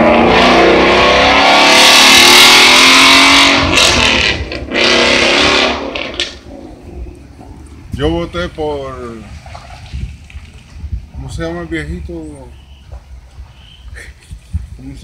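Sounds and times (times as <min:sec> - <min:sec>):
motor vehicle engine revving: 0:00.0 - 0:07.9.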